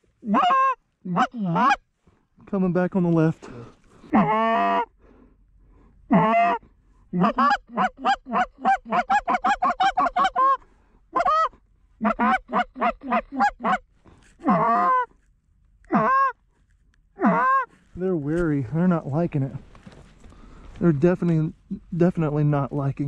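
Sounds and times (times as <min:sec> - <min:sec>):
goose call clucks: 0:00.2 - 0:01.8, 0:04.1 - 0:04.9, 0:06.1 - 0:15.2, 0:15.9 - 0:16.4, 0:17.2 - 0:17.8
goose call honks: 0:00.2 - 0:01.8, 0:06.1 - 0:06.6, 0:07.2 - 0:10.6, 0:11.2 - 0:15.1, 0:15.9 - 0:16.4, 0:17.2 - 0:17.7.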